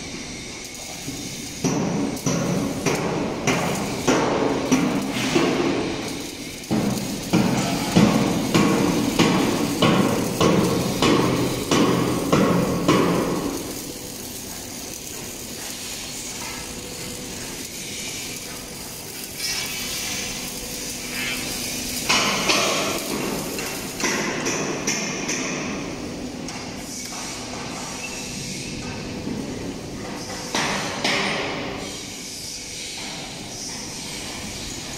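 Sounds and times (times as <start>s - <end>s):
workshop background noise: 0.0s - 34.9s
hammer striking steel: 6.7s - 13.8s, 22.0s - 25.8s.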